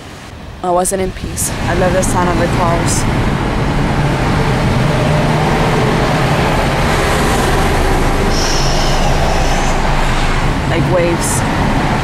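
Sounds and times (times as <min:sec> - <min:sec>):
highway traffic road noise: 0:00.0 - 0:12.0
thin high whine: 0:06.4 - 0:11.2.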